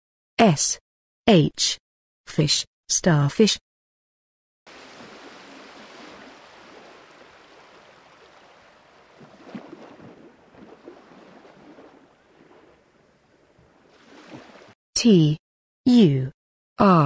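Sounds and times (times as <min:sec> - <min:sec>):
rushing water: 0:04.7 - 0:14.8.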